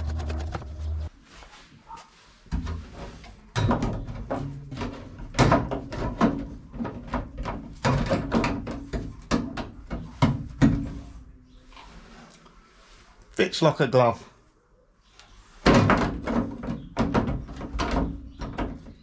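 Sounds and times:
steel panel knocking and clattering: 3.5 - 11.0, 15.6 - 19.0.

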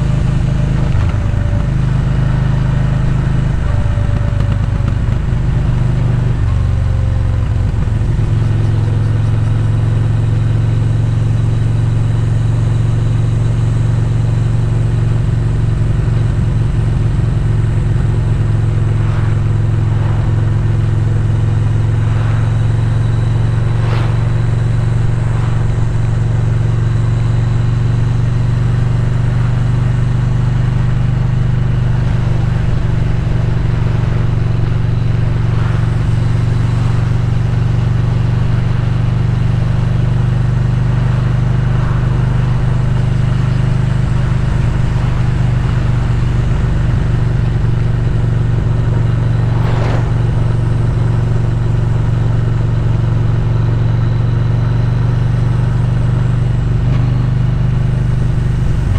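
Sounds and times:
motorcycle engine running: 0.0 - 58.9
wind and road noise: 0.0 - 58.9.

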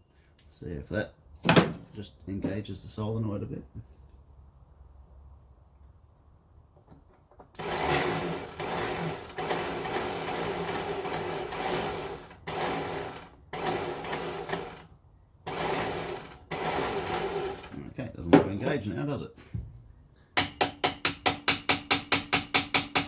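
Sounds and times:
starter motor whirring: 7.6 - 14.9, 15.5 - 17.8.

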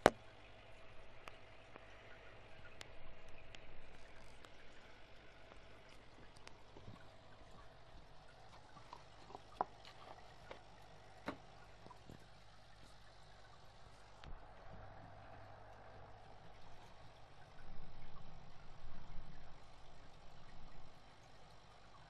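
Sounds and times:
aquarium water trickling: 0.0 - 22.0
low steady hum: 0.0 - 22.0.

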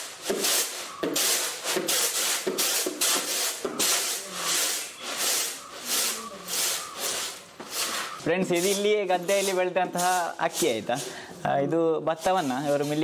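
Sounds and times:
rice rattling in woven trays: 0.0 - 11.1.

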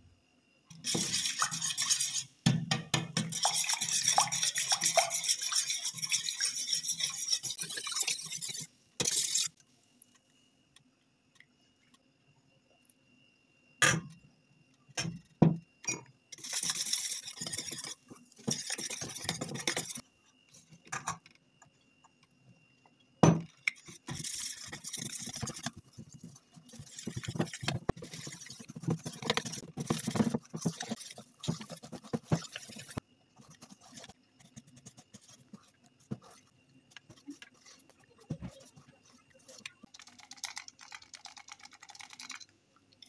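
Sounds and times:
whisk scraping steel bowl: 0.8 - 2.3, 3.2 - 9.6, 16.4 - 20.0, 23.9 - 36.5.

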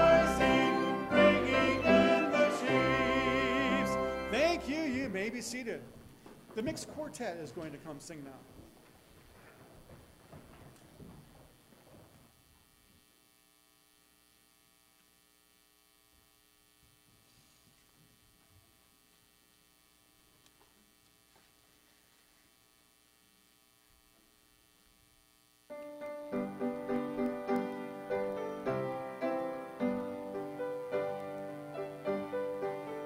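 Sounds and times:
piano playing hymn introduction: 0.0 - 5.8, 25.7 - 33.0
electrical hum: 0.0 - 33.0
faint shuffling: 4.3 - 12.4, 20.3 - 22.7.

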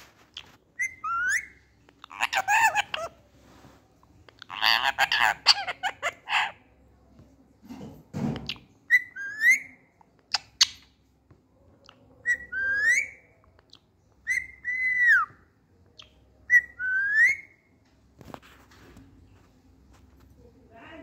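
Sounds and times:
parakeet whistling: 0.4 - 3.1, 8.9 - 10.8, 12.2 - 13.3, 14.2 - 15.4, 16.0 - 17.6.

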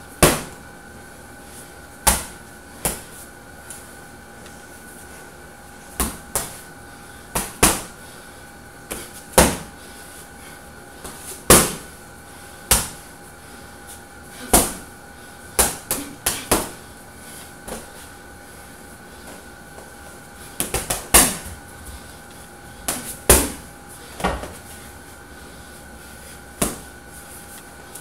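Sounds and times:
boxing gloves punching heavy bag: 8.9 - 9.7, 22.9 - 23.6.

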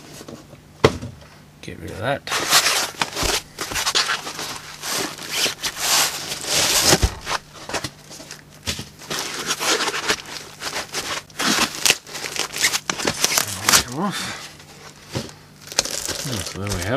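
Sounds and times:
foam rubbing and scraping: 2.3 - 7.6
plastic bag crinkling: 2.6 - 14.0, 15.6 - 16.9.

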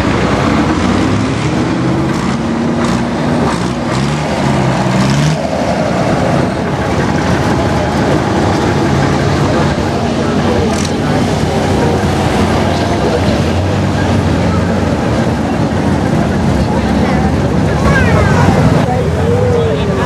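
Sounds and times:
vehicle engines driving past: 0.0 - 20.0.

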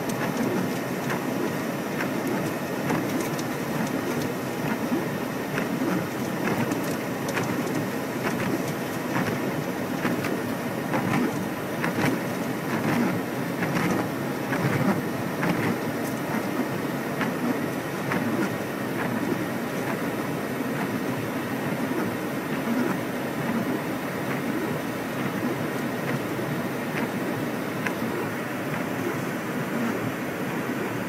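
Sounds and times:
raindrops tapping on car: 0.0 - 20.2.

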